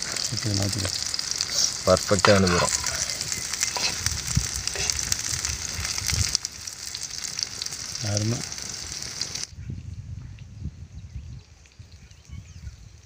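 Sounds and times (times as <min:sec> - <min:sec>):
food sizzling in oil: 0:00.0 - 0:09.5.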